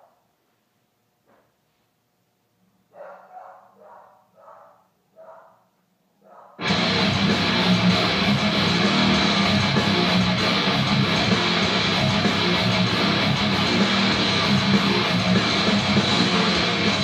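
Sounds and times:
guitar-driven rock music: 6.6 - 17.0.

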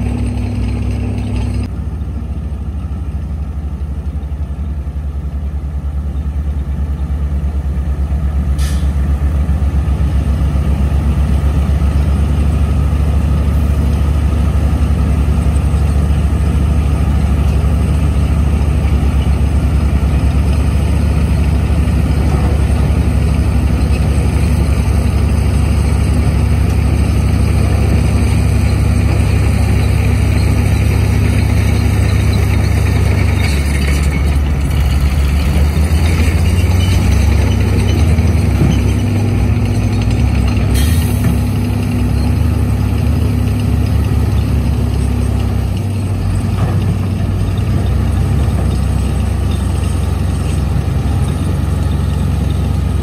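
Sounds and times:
heavy diesel engine under load: 0.0 - 53.0
brief hiss: 8.6 - 9.0.

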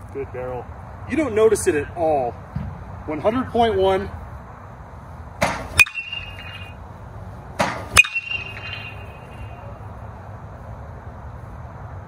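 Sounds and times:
metal bat hitting baseball: 5.4 - 6.8, 7.6 - 9.7.

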